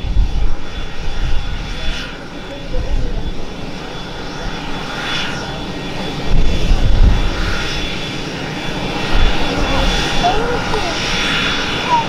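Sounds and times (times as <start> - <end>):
wind rumble on microphone: 0.0 - 1.9, 6.0 - 8.1
turbine whine: 0.0 - 12.0.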